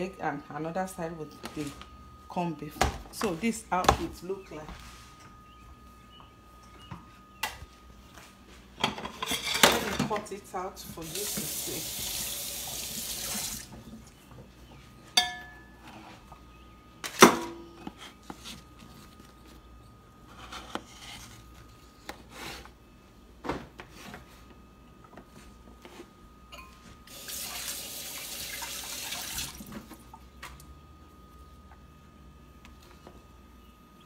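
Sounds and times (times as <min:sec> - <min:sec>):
dishes clinking in metal sink: 0:15.2 - 0:15.7, 0:26.5 - 0:26.8.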